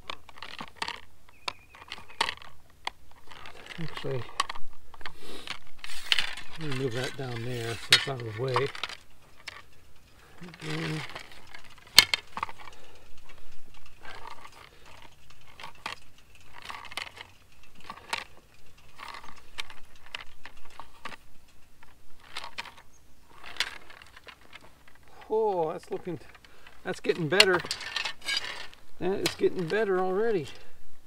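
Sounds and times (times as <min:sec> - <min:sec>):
metal tube clanking and scraping: 0:03.2 - 0:09.6, 0:10.2 - 0:18.4, 0:25.9 - 0:30.6.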